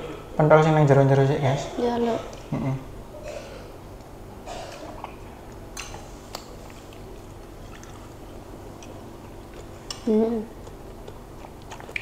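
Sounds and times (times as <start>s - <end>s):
wet chewing and mouth sounds: 4.7s - 12.0s.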